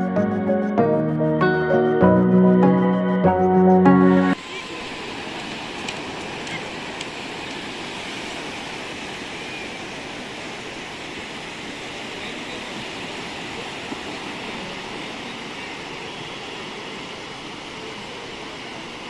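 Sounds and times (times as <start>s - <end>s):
waves breaking on a beach: 4.3s - 19.0s.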